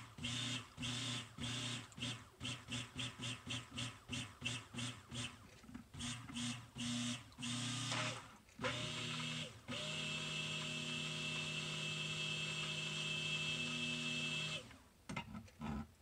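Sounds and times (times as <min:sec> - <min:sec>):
stick blender motor whirring: 0:06.0 - 0:14.8.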